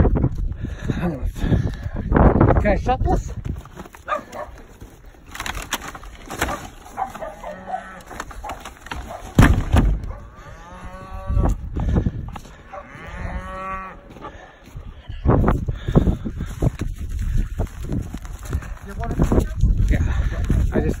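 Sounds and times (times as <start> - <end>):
cattle mooing: 7.2 - 8.1, 10.3 - 11.6, 12.7 - 14.1.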